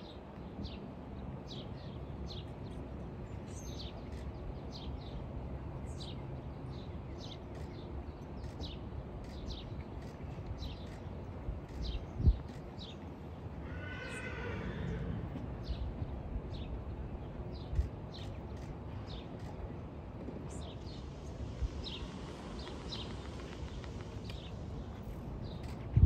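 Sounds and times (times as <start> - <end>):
birds chirping: 1.5 - 26.0.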